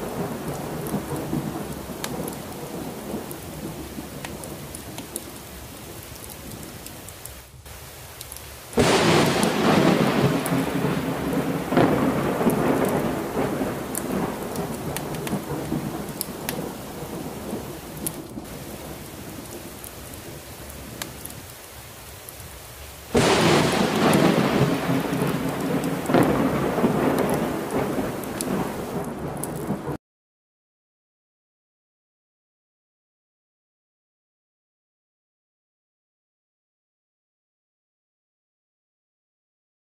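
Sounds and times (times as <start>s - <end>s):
thunder rumbling: 0.0s - 6.7s, 8.8s - 21.5s, 23.1s - 30.0s
steady rain: 0.0s - 30.0s.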